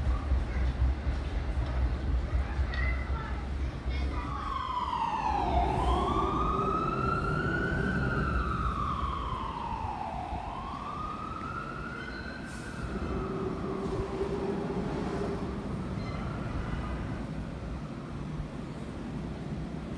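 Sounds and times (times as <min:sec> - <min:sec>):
emergency vehicle siren wailing: 0:04.3 - 0:15.7.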